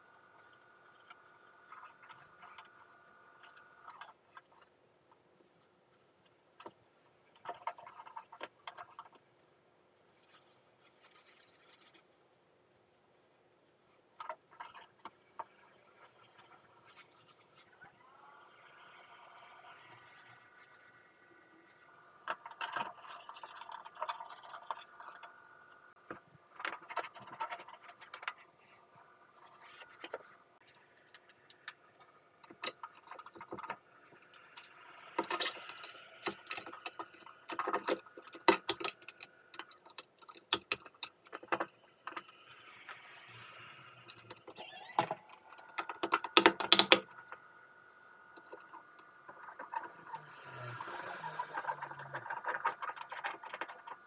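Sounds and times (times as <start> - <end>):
scrapes clicks and knocks: 51.3 - 54.0.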